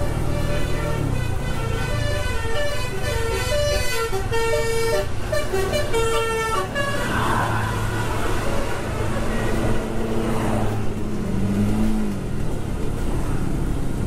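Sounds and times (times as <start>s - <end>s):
musical horn tune: 0.0s - 7.1s
motorcycle rumble: 0.0s - 14.0s
wind: 0.0s - 14.0s.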